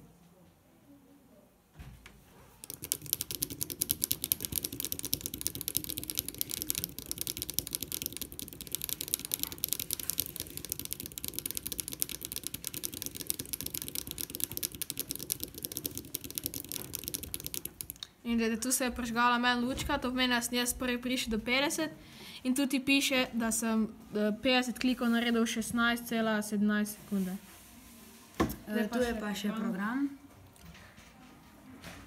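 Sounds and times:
pushbuttons clicking rapidly: 0:02.6 - 0:18.0.

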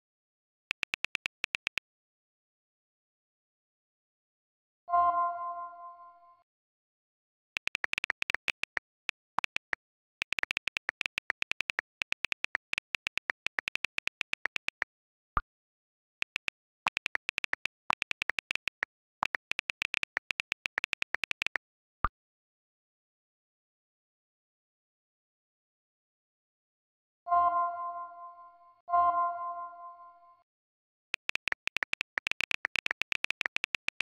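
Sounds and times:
phone keyboard clicks from typing: 0:00.7 - 0:01.8, 0:07.6 - 0:14.9, 0:16.2 - 0:21.6, 0:31.2 - 0:34.0
message sent click: 0:07.6 - 0:08.8, 0:31.2 - 0:34.0.

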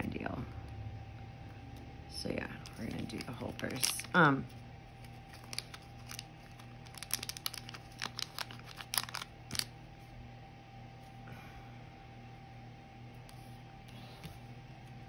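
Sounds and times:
plastic film crackling: 0:02.6 - 0:09.7.

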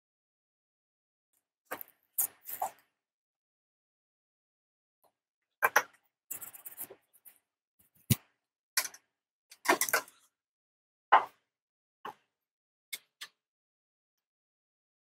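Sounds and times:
small clicks and taps: 0:08.1 - 0:10.2.

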